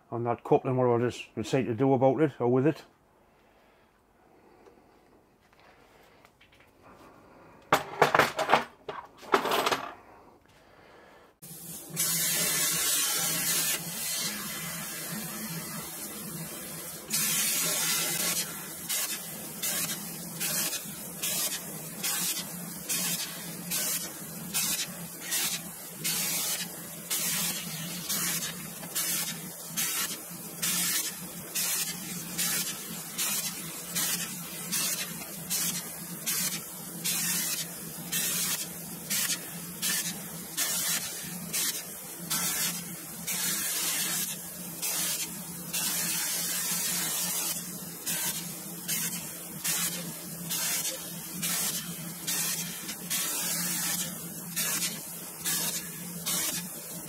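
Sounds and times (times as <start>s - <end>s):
plasma cutter hissing bursts: 11.4s - 57.0s.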